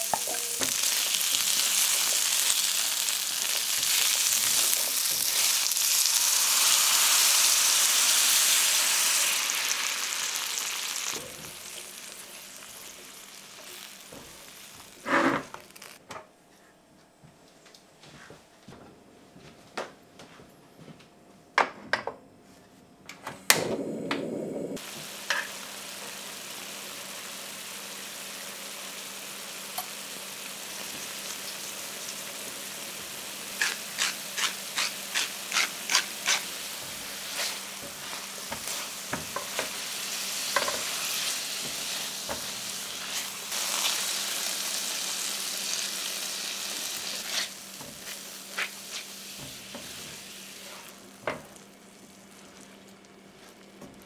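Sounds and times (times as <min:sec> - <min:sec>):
potatoes sizzling in a frying pan: 0:00.0 - 0:16.0, 0:24.8 - 0:54.0
pepper mill grinding: 0:33.6 - 0:36.5.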